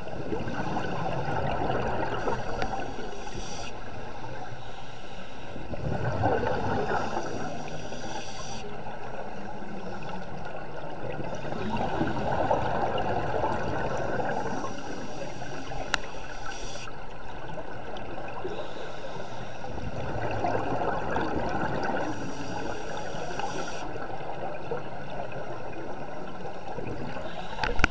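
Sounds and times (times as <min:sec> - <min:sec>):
bubbling exhaled air underwater: 0:00.0 - 0:03.3, 0:05.7 - 0:16.0, 0:19.6 - 0:27.9
steady watery hiss: 0:00.0 - 0:27.9.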